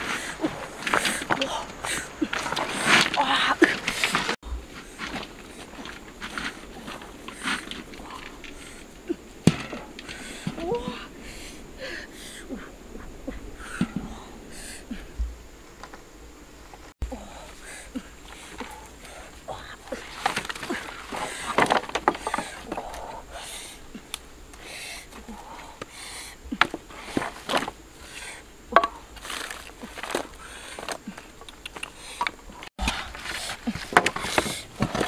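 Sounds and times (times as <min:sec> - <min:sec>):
dry sticks knocking on stones: 0:20.2 - 0:22.9, 0:28.7 - 0:35.0.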